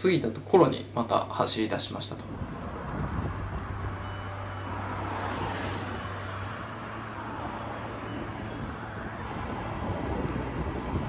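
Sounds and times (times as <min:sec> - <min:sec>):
cars driving on busy road: 0:02.2 - 0:11.0.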